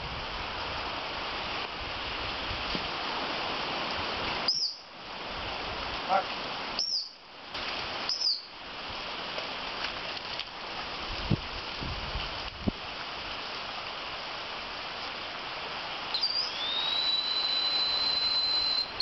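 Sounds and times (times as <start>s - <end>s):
steady rushing hiss: 0.0s - 19.0s
high training whistle pips: 4.5s - 4.8s, 6.8s - 7.2s, 8.1s - 8.5s, 16.1s - 19.0s.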